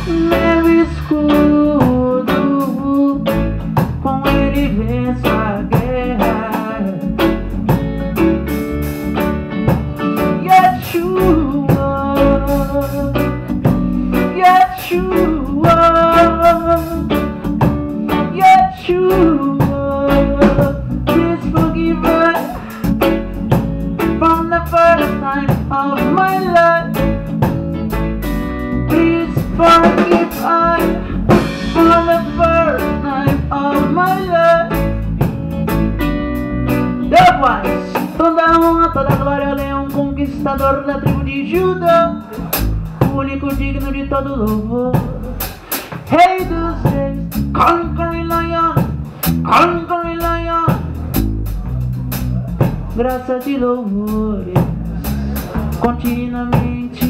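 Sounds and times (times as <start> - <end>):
electric guitar lead: 0.0 - 43.0
drum kit: 0.0 - 57.0
keyboard: 0.0 - 57.0.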